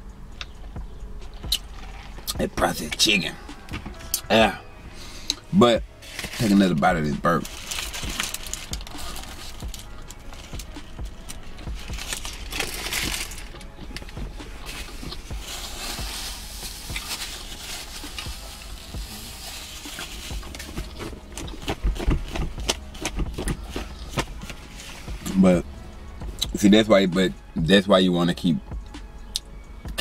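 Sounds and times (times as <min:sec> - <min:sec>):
paper wrapper crinkling: 0:06.0 - 0:25.0
biting and chewing: 0:07.5 - 0:25.4.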